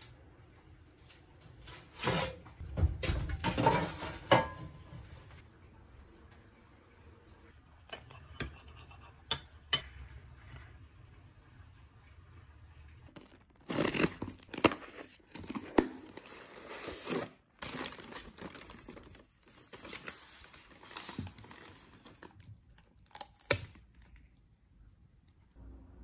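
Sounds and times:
paper and plastic crinkling: 13.2s - 24.4s
paper tearing: 13.6s - 22.3s.

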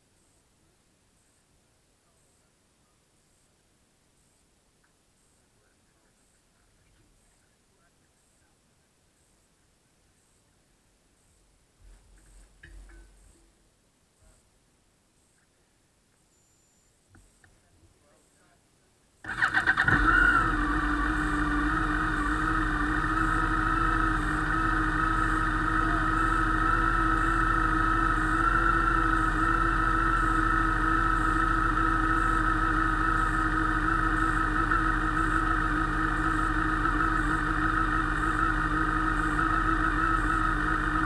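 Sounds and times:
constant whine: 0.0s - 41.0s
motorcycle engine idling: 19.2s - 41.0s.

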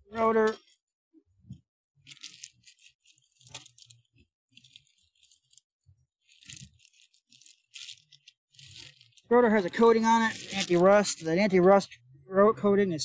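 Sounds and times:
plastic bag crinkling: 2.1s - 11.4s.

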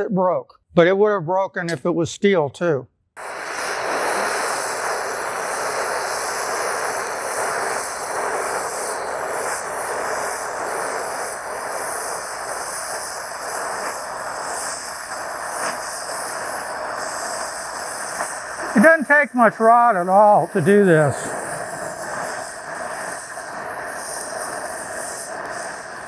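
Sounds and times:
torch flame hissing: 3.2s - 26.0s.

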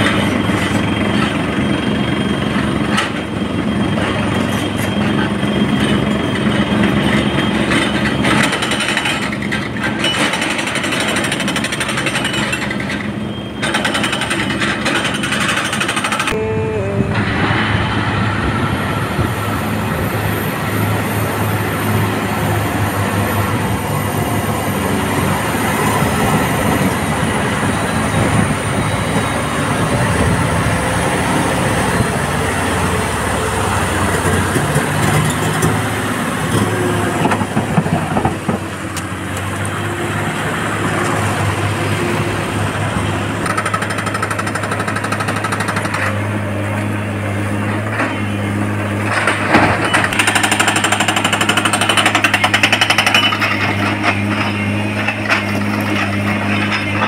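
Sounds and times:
hydraulic rock breaker pounding: 0.0s - 16.4s, 43.3s - 46.4s, 47.6s - 57.0s
diesel truck engine running: 0.0s - 57.0s.

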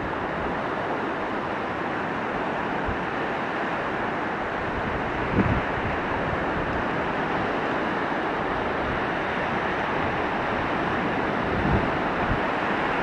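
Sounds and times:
waves washing onto shore: 0.0s - 13.0s
wind buffeting microphone: 4.6s - 7.7s, 8.4s - 13.0s.

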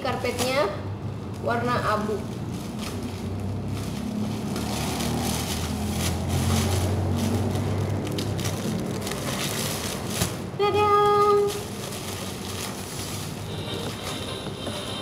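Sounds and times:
plastic wrapping crinkling: 0.0s - 15.0s
loud steady tone: 13.4s - 15.0s.

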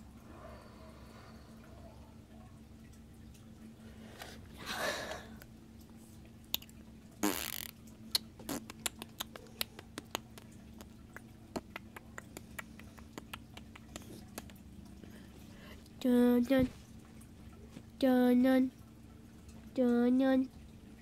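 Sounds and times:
faint steady hum: 0.0s - 21.0s
mouth clicks and smacks: 6.5s - 14.7s.

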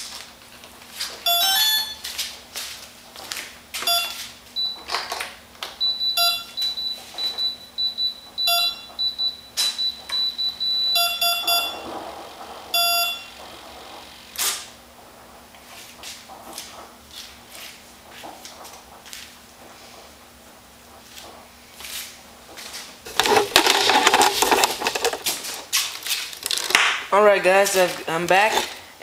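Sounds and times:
electronic speed controller beeps: 5.8s - 11.9s, 12.7s - 13.4s
high pulsing beep: 5.8s - 11.9s, 12.8s - 13.4s.

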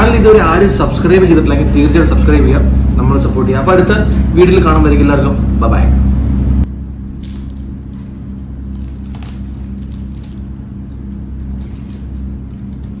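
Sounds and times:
low machine hum: 0.0s - 13.0s
paper and foil crinkling: 7.2s - 13.0s.

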